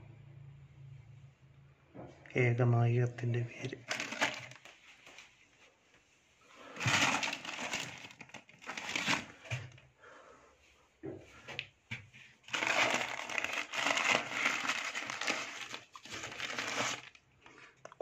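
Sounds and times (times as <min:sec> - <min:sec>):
plastic bags crinkling: 0:03.8 - 0:05.2, 0:06.6 - 0:09.8, 0:12.4 - 0:17.2.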